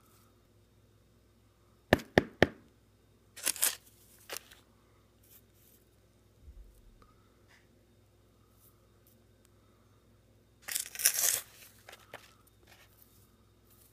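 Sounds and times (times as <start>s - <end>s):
crinkling rustle: 3.4s - 4.6s, 10.6s - 13.9s.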